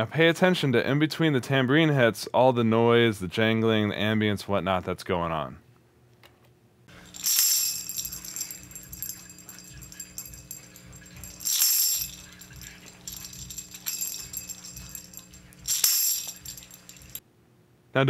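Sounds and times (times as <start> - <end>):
quiet jangling: 6.9 - 17.2
room ambience: 6.9 - 17.2
tambourine jingling shake: 6.9 - 17.2
low steady hum: 6.9 - 17.9.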